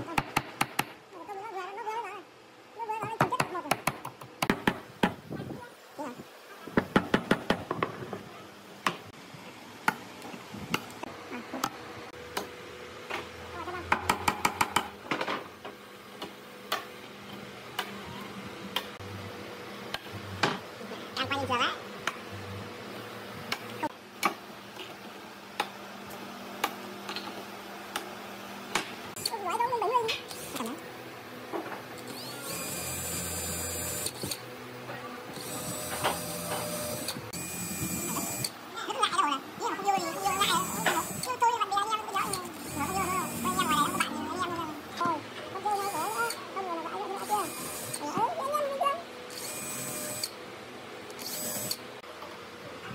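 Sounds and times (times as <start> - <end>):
hammer striking nails into wood: 0.2 - 1.0.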